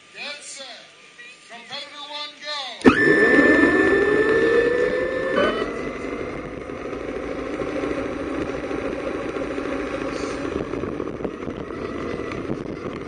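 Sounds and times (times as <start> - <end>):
rover drivetrain hum: 2.8 - 13.0.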